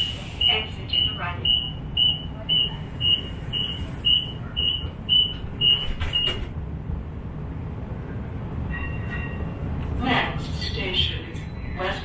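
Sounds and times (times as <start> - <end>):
streetcar low hum: 0.0 - 12.0
door warning beeper: 0.4 - 6.5
doors closing clatter: 2.9 - 6.6.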